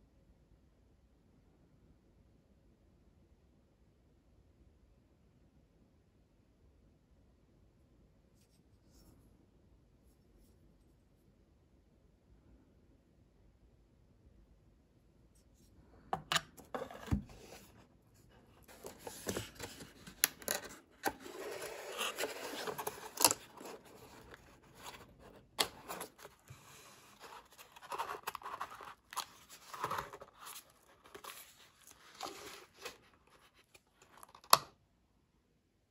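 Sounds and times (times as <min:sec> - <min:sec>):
cardboard rubbing and scraping: 0:18.5 - 0:34.3.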